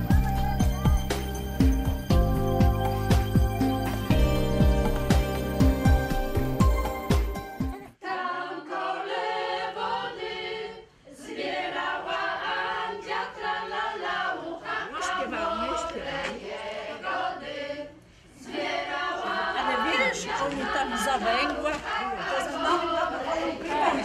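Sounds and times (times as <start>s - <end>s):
group of people singing: 7.9s - 24.0s.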